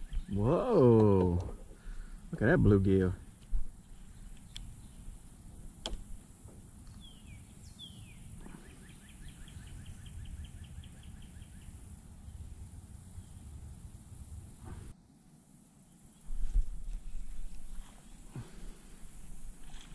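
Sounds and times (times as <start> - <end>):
bird singing whistles and trill: 0.0 - 0.6
low outdoor rumble: 0.0 - 14.9.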